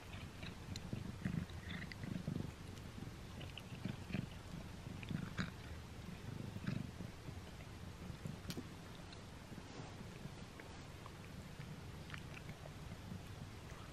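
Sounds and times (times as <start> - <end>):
kitten chewing a treat: 0.0 - 13.9
teeth clicking on treat: 10.6 - 13.4.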